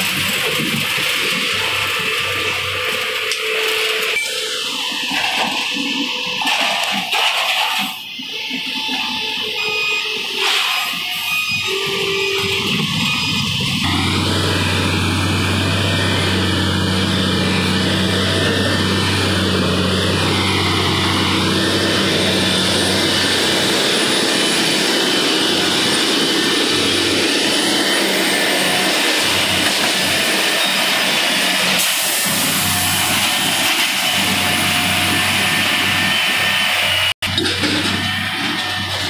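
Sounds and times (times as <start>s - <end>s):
train machinery droning: 0.1s - 39.0s
low hum: 13.8s - 27.9s.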